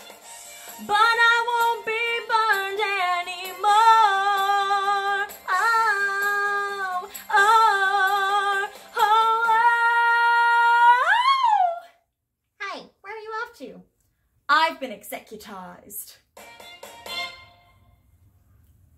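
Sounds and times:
woman singing show tune: 0:00.7 - 0:11.9.

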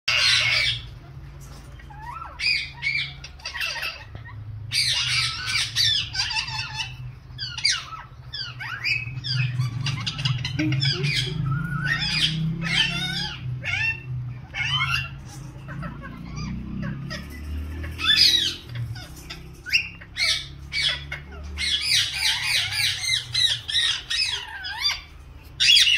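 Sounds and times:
parakeets squawking and chattering: 0:00.1 - 0:25.9.

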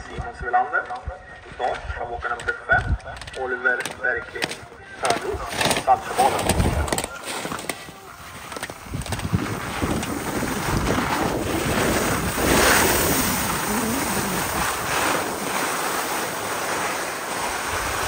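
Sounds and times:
wind buffeting microphone: 0:00.0 - 0:04.2, 0:08.5 - 0:16.3.

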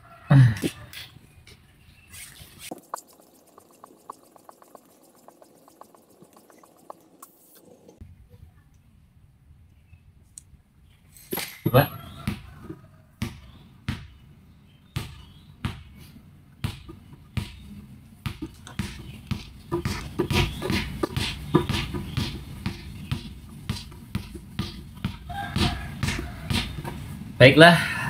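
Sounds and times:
basketball bouncing on tiled floor: 0:11.9 - 0:14.2, 0:14.9 - 0:16.0, 0:16.6 - 0:27.1.

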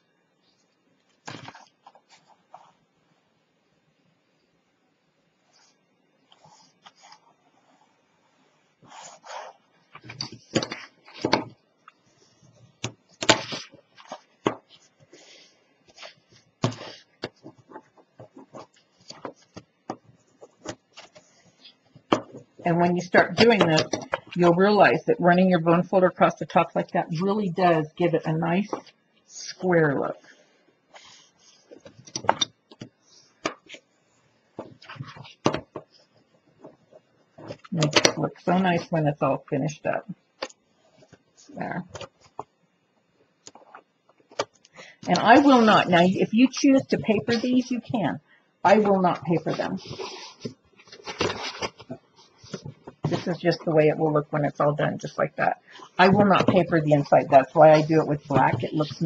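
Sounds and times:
cardstock taps and rustles: 0:12.8 - 0:14.8, 0:22.0 - 0:22.6, 0:48.8 - 0:53.4, 0:56.0 - 0:57.1
cardstock rustling: 0:45.1 - 0:47.8, 0:48.7 - 0:54.6.

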